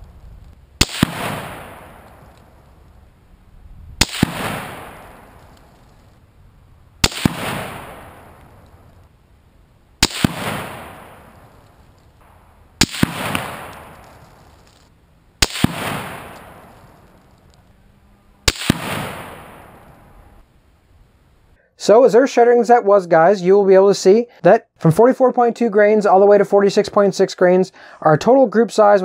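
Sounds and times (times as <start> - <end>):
rifle shots with echo: 0.8 - 2.6, 4.0 - 5.7, 7.0 - 8.8, 10.0 - 14.8, 15.4 - 17.2, 18.4 - 20.4.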